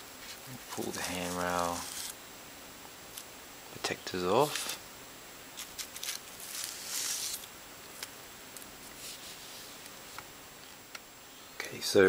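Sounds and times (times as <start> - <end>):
plastic rustling: 0.2 - 2.2, 5.6 - 10.2.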